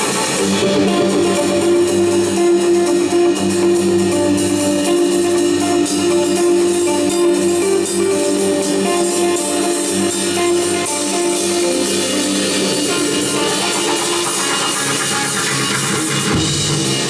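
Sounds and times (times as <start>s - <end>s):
electric bass: 0.0s - 17.0s
electric guitar: 0.0s - 17.0s
fast ticking percussion: 8.6s - 17.0s.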